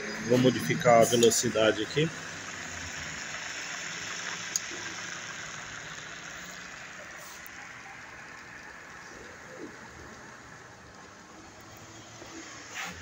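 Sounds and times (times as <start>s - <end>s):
drill motor whirring: 0.1s - 9.5s.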